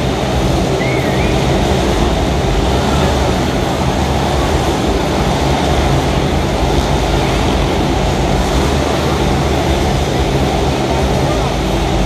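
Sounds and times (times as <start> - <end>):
motorcycle engines running hard: 0.0 - 12.0.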